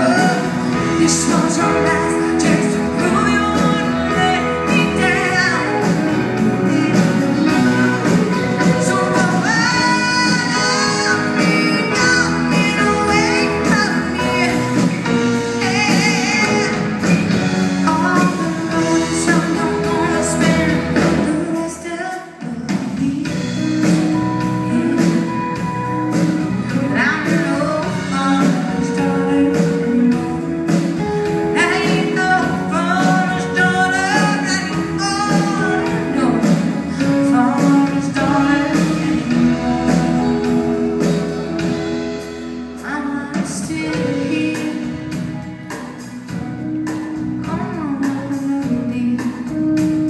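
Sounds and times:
guitars: 0.0s - 50.0s
keyboard: 0.0s - 50.0s
person singing: 0.0s - 50.0s
drums beat: 29.8s - 47.6s.

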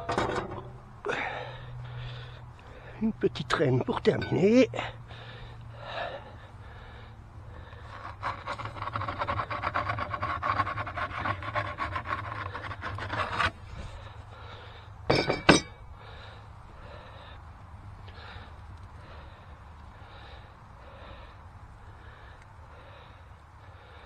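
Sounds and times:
wooden peel scraping oven floor: 8.0s - 13.6s.

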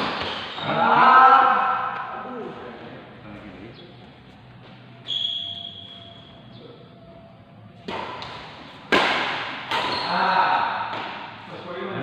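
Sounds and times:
racket hitting shuttlecock: 7.8s - 11.4s.

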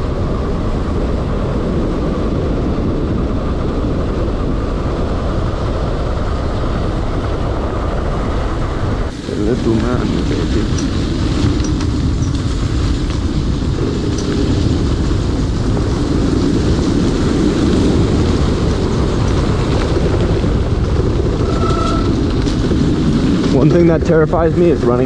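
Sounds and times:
wind rushing on microphone: 0.0s - 25.0s
tyre rumble on dirt trail: 9.6s - 24.3s.

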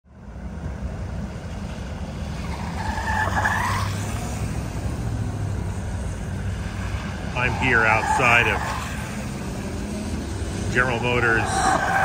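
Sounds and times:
vehicles rolling past: 0.1s - 12.0s
high squeal: 7.3s - 9.0s.

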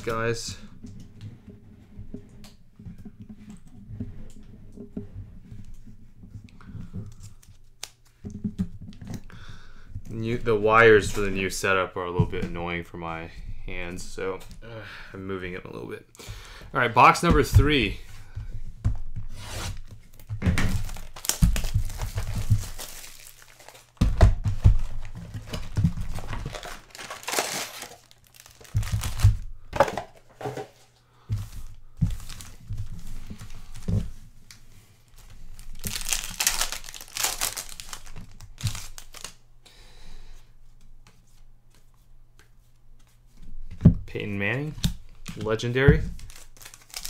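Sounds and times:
plastic wrapping crinkling: 19.8s - 29.5s, 31.4s - 33.9s, 34.5s - 39.4s, 45.3s - 47.0s.

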